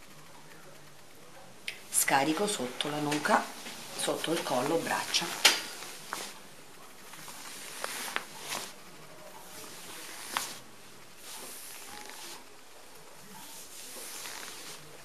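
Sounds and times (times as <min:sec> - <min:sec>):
hands rubbing over skin: 0:03.6 - 0:06.4, 0:07.1 - 0:08.8, 0:09.4 - 0:10.6, 0:11.2 - 0:12.5, 0:13.4 - 0:15.0.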